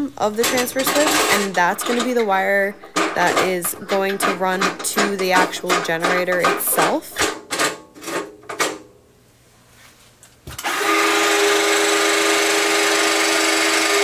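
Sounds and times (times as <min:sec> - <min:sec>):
drill motor whine: 0:10.6 - 0:14.0.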